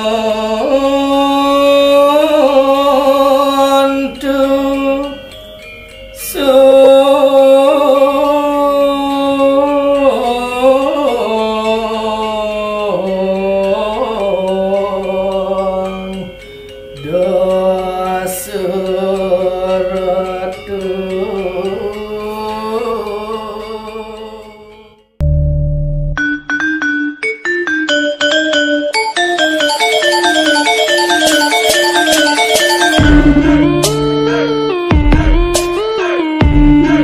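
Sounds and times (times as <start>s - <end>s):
person singing a devotional chant: 0.0s - 5.3s, 6.2s - 25.0s, 32.3s - 37.0s.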